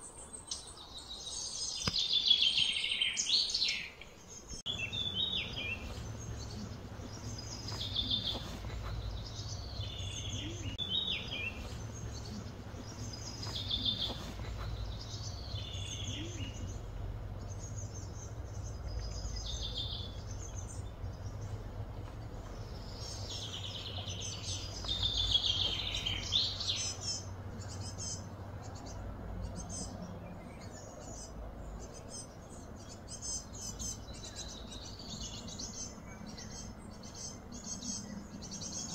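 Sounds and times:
small birds chirping and singing: 0.0s - 38.9s
low background hum: 4.0s - 38.9s.

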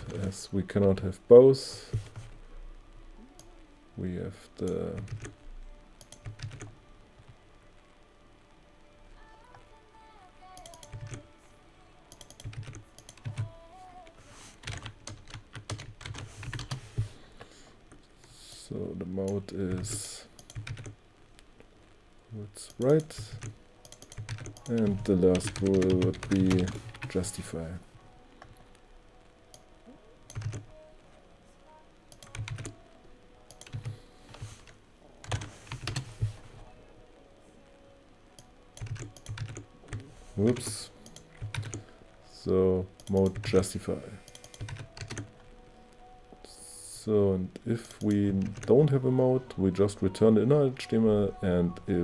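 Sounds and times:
typing on computer keyboard: 5.0s - 5.4s, 6.0s - 6.7s, 10.6s - 11.2s, 12.1s - 13.5s, 14.6s - 16.8s, 19.7s - 21.0s, 22.9s - 27.3s, 30.3s - 30.7s, 32.1s - 32.8s, 33.5s - 36.1s, 38.8s - 41.9s, 44.3s - 45.3s, 47.9s - 48.8s.

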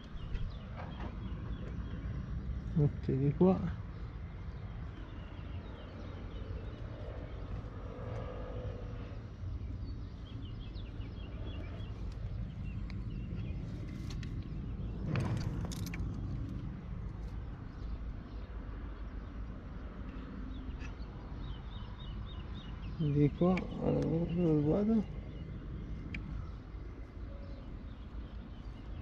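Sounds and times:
low rumble: 0.0s - 18.6s.

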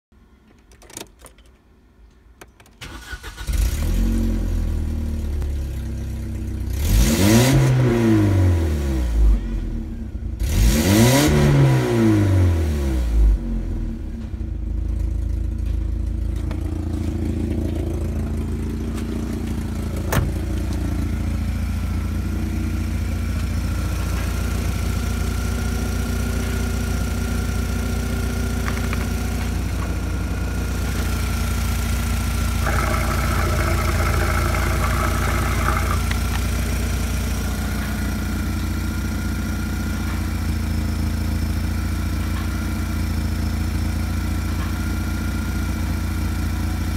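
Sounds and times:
car engine starting and revving: 2.8s - 5.4s, 6.6s - 9.3s, 10.4s - 13.9s, 30.2s - 38.0s.

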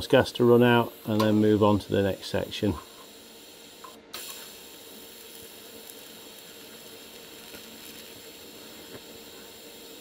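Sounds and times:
welding arc hissing: 0.0s - 10.0s.

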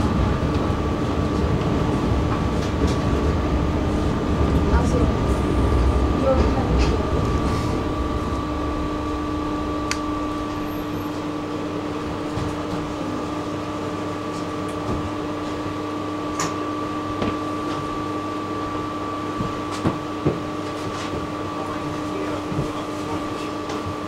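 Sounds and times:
steady tones: 0.0s - 12.7s
running rumble: 0.0s - 17.4s
tram electrical hum: 0.0s - 24.0s.

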